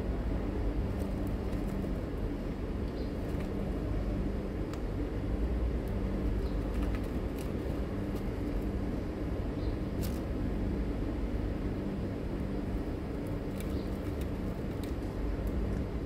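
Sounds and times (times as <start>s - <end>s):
constant low drone: 0.0s - 16.0s
cat crunching dry kibble: 0.8s - 2.3s, 5.9s - 8.8s, 13.1s - 15.9s.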